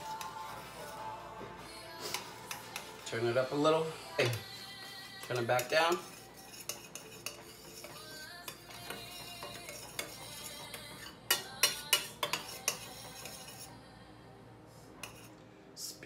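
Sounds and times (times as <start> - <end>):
metal spoon stirring in saucepan: 0.0 - 13.8, 15.0 - 15.4
spoon clinking against pot: 4.2 - 13.7.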